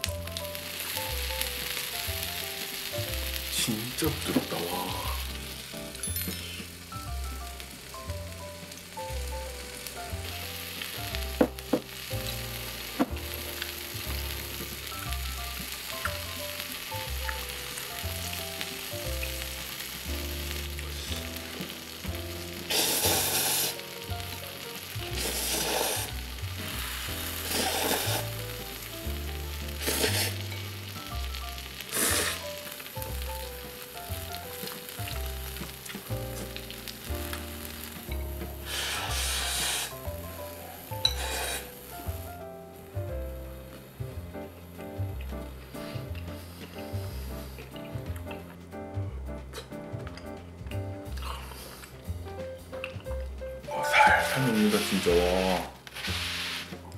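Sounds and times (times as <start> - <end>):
soft background music: 0.0 - 56.9
noodles slurped: 22.7 - 23.8, 25.2 - 26.2, 26.8 - 28.4, 29.8 - 30.5.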